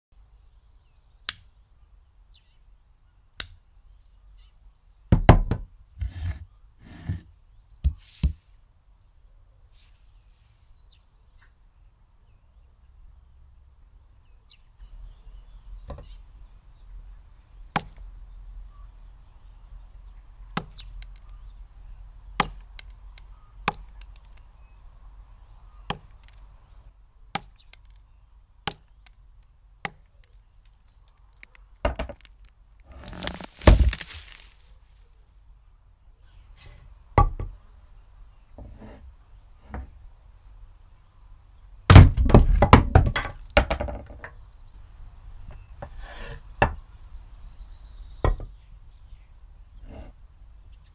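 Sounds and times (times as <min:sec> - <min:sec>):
axe chopping wood: 0:22.4 - 0:22.9, 0:27.4 - 0:27.6, 0:28.7 - 0:28.9, 0:32.9 - 0:34.6, 0:41.9 - 0:43.3
tree cracking and falling: 0:30.8 - 0:34.8.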